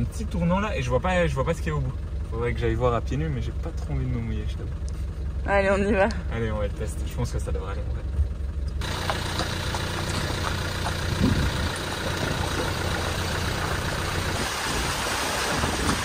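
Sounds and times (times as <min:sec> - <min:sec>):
car engine running: 0:00.0 - 0:16.0
water rushing: 0:08.8 - 0:16.0.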